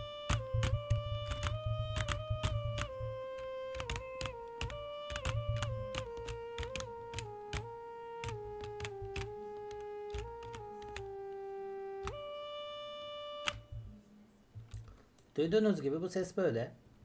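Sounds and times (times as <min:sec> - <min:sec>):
keyboard keys clicking: 0:00.0 - 0:12.3, 0:13.4 - 0:13.9
duduk held notes: 0:00.0 - 0:14.8.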